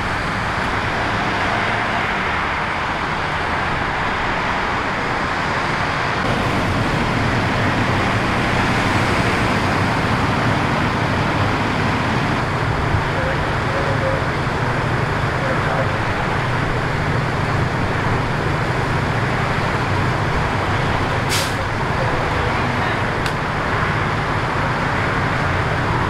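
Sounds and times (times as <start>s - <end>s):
highway traffic rushing: 0.0s - 26.0s
engine idling rumble: 6.2s - 26.0s.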